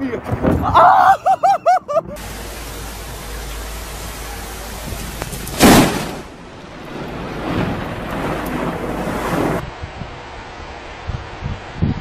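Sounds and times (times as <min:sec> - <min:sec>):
rain and wind hissing: 0:01.4 - 0:12.0
low rumble: 0:01.9 - 0:12.0
thunder crack: 0:03.9 - 0:10.0.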